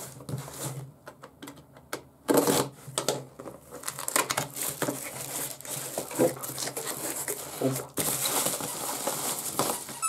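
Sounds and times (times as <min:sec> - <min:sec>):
packaging clicks and rustles: 0:02.3 - 0:10.0.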